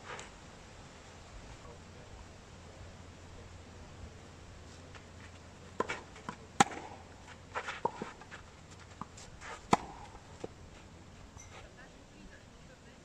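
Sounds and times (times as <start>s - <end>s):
shoes scuffing clay: 4.7s - 11.7s
racket hitting tennis ball: 5.7s - 10.9s
ball bouncing: 5.8s - 7.1s, 7.8s - 10.6s.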